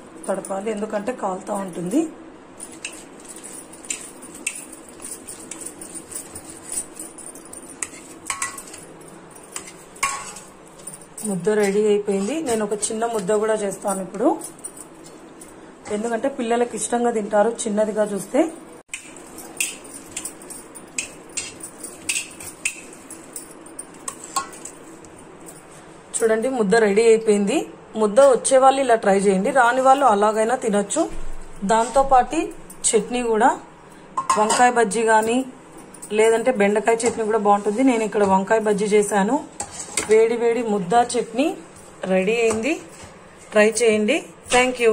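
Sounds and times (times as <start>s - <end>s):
clinks on a steel plate: 2.7s - 15.2s, 18.9s - 24.8s, 34.2s - 40.3s, 42.3s - 43.8s.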